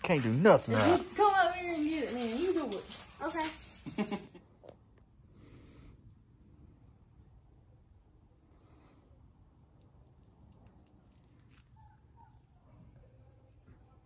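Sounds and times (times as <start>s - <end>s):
high-pitched hiss: 0.0s - 9.8s
faint ticks: 9.6s - 11.8s.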